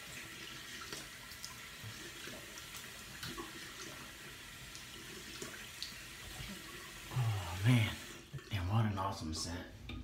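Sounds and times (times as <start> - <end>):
sink tap running: 0.0 - 8.8.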